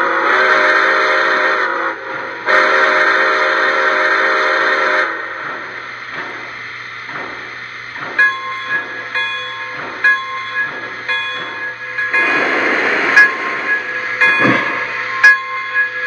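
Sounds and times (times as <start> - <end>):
steam whistle blasts: 0.0 - 5.3
steam locomotive chuffing: 0.0 - 16.0
bell ring: 8.2 - 12.5, 13.1 - 16.0.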